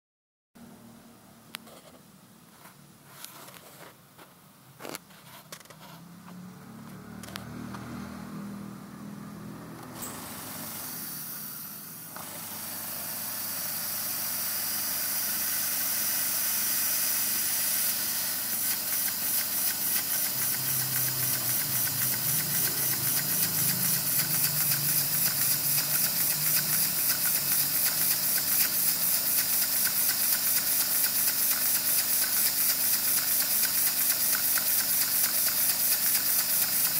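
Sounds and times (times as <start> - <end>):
air hissing: 10.0 - 36.9
air engine running with pulse: 20.0 - 28.6.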